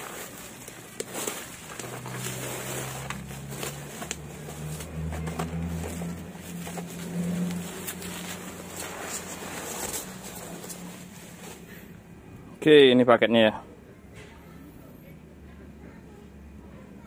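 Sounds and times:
bubble wrap rustling: 0.0 - 12.0
low engine hum: 0.0 - 12.6.

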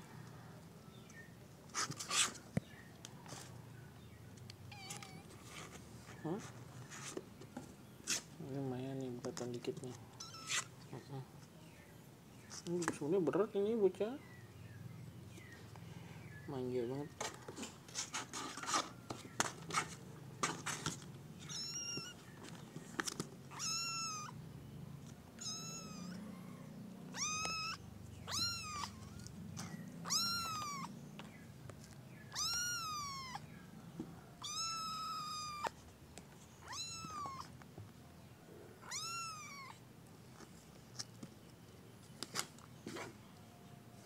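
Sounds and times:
kitten meowing: 4.7 - 5.3, 10.2 - 10.7, 21.4 - 22.2, 23.5 - 24.4, 25.4 - 29.2, 30.0 - 30.9, 32.3 - 33.5, 34.4 - 35.8, 36.6 - 37.5, 38.8 - 39.8.

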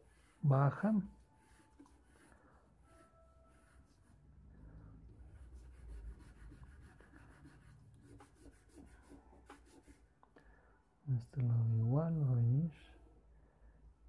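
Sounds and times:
charcoal scratching on paper: 0.0 - 4.2, 5.1 - 10.1.

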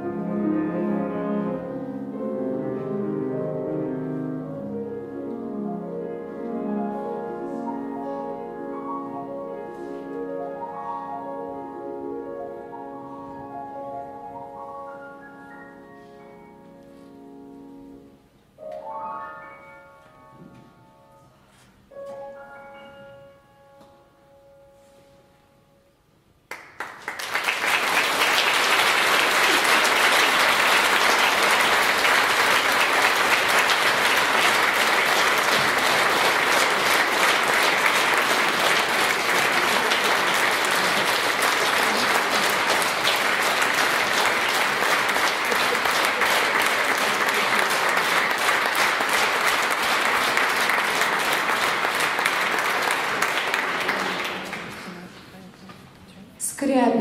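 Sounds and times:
audience applauding: 26.5 - 55.3.

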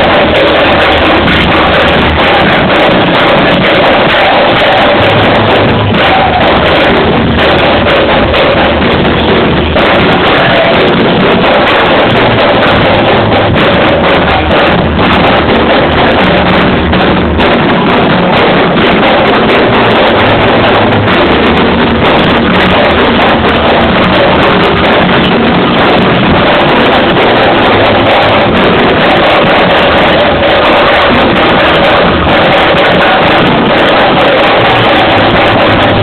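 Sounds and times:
bass line: 0.0 - 36.0
distorted live band music: 0.0 - 36.0
sharp hits: 0.0 - 36.0.

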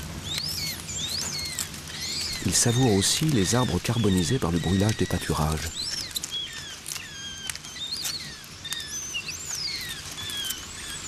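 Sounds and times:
birds chirping: 0.0 - 11.0
steady hiss: 0.0 - 11.0.

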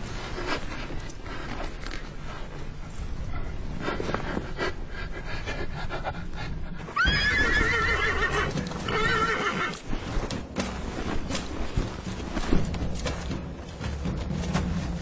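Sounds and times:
horse whinnying: 7.0 - 9.8.

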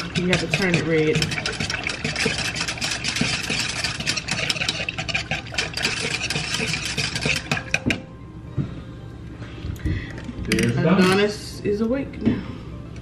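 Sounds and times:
sauce mixing with rapid clicking: 0.0 - 8.0.

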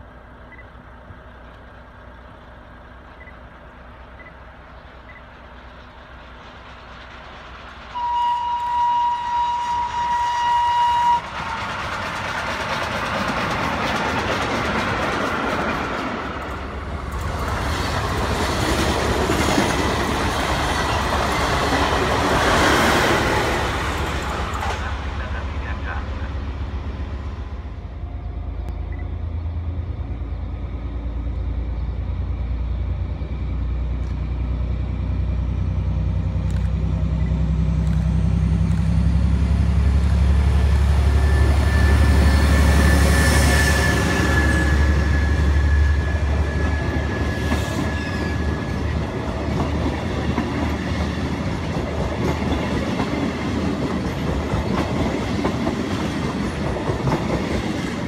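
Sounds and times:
diesel locomotive engine drone: 0.0 - 58.0
train wheels clattering over rail joints: 11.2 - 22.9, 46.3 - 58.0.

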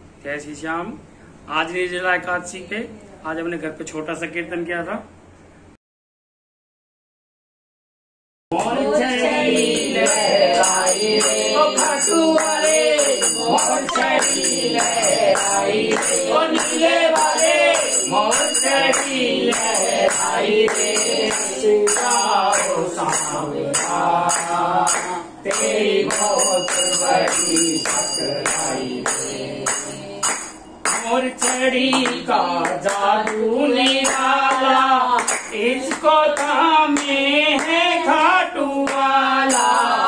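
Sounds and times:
group singing devotional song: 8.5 - 40.0
jingling hand percussion: 9.0 - 37.8, 38.8 - 40.0.

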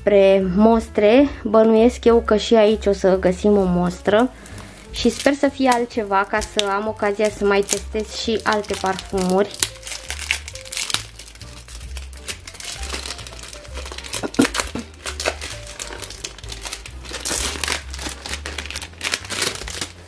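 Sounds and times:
background music: 0.0 - 20.0
cellophane crinkling: 4.0 - 20.0.

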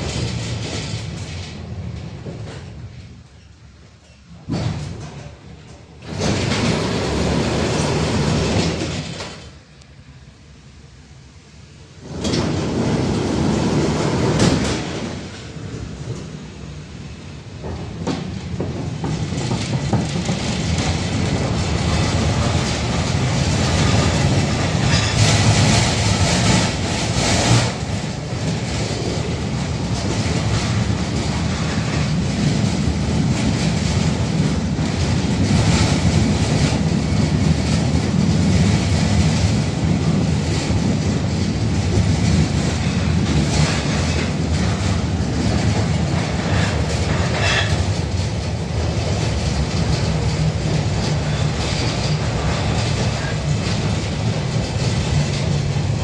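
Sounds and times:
tram clattering: 0.0 - 56.0
tram motors and wheels drone: 0.0 - 56.0.

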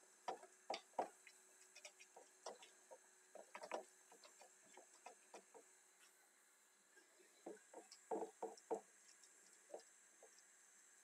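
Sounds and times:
utensil tapping and scraping in pan: 0.3 - 5.7.

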